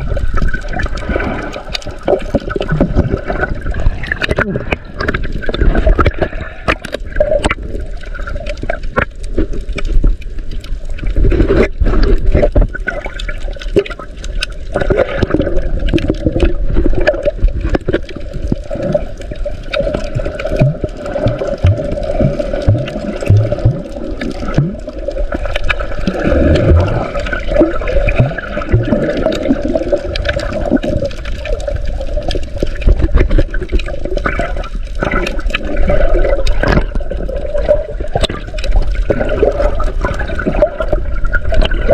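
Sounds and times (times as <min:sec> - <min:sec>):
underwater sloshing and gurgling: 0:00.0 - 0:41.9
bubbling blips: 0:19.7 - 0:31.7.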